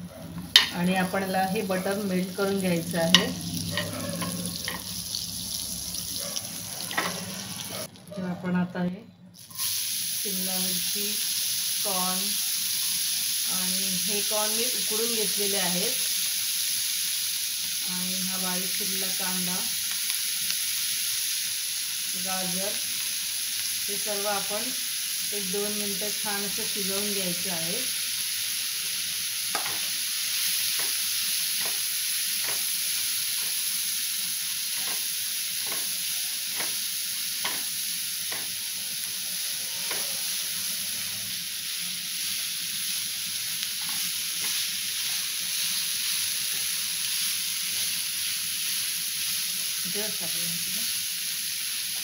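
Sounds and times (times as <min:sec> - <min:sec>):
vegetables sizzling in a pan: 0:00.0 - 0:08.1, 0:09.4 - 0:52.0
spatula scraping a pan: 0:03.7 - 0:04.8.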